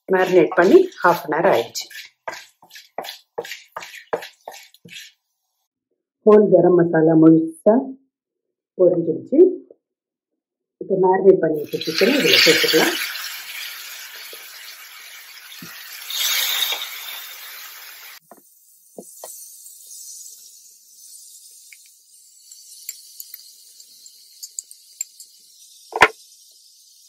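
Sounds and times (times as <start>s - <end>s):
chicken sizzling in hot oil: 0.0s - 5.2s, 11.6s - 27.0s.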